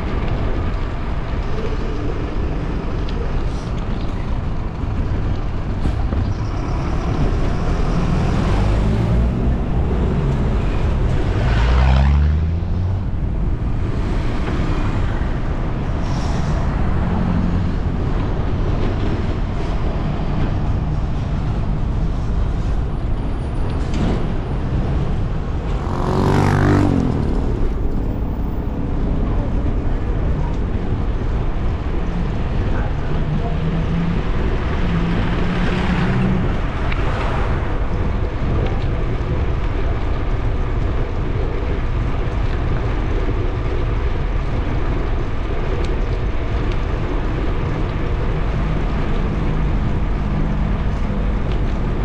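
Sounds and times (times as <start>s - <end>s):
steady low rumble: 0.0s - 25.9s, 26.9s - 35.4s
street traffic: 0.0s - 52.0s
vehicle engine accelerating past: 6.7s - 13.2s, 25.7s - 28.5s.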